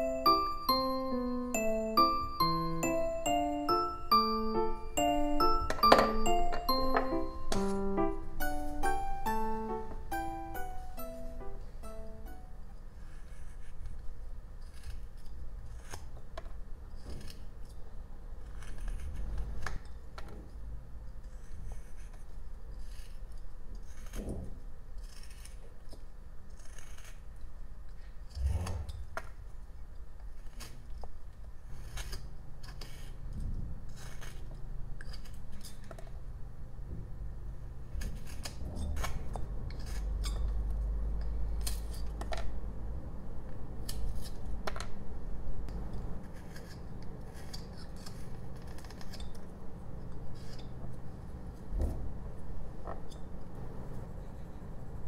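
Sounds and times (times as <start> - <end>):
knife cutting and scraping wood: 14.6 - 16.2, 21.2 - 27.4, 30.2 - 33.2, 37.9 - 40.4, 43.8 - 44.5, 45.9 - 49.5.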